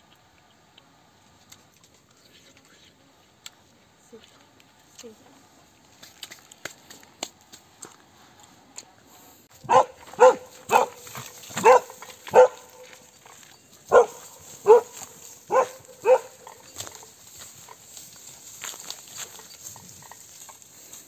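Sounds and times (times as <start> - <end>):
dog barking: 9.6 - 12.9, 13.9 - 16.6.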